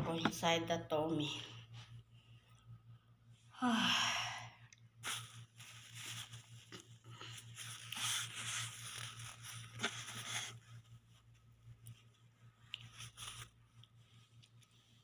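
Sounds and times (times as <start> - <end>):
low hum: 0.0 - 15.0
tissue paper crinkling: 5.0 - 15.0.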